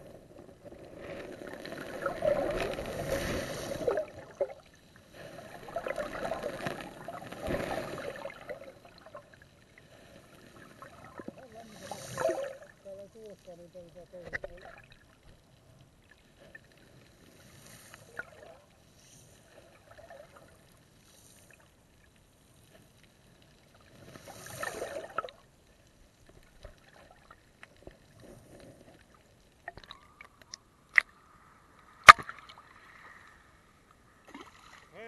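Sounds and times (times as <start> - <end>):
rush of water: 0.0 - 4.6, 5.2 - 9.1, 10.8 - 15.0
underwater gurgles and knocks: 0.0 - 12.8, 22.6 - 34.8
water slaps: 32.0 - 32.6.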